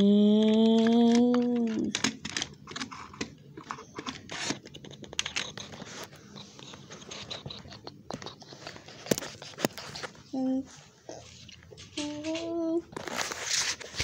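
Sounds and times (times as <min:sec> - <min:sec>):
child humming engine noise: 0:00.0 - 0:01.9.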